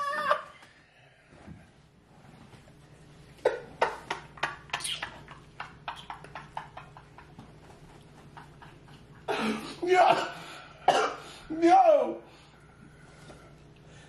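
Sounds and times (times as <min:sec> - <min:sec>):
man laughing: 0:03.5 - 0:10.4.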